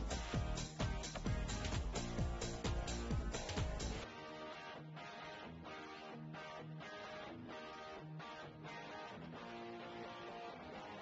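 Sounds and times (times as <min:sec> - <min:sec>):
strummed guitar music: 0:00.0 - 0:11.0.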